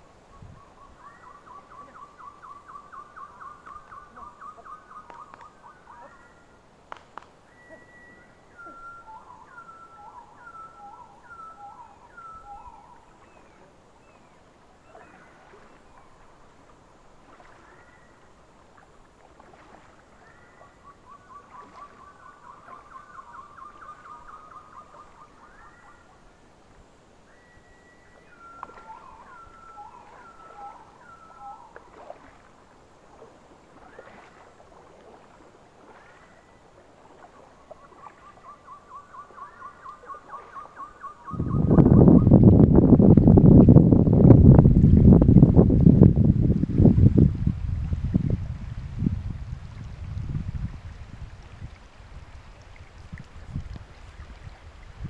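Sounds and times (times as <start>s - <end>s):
bird whistled notes dropping in pitch: 7.5s - 13.0s, 27.3s - 31.7s
songbird rapid trill: 27.3s - 31.8s.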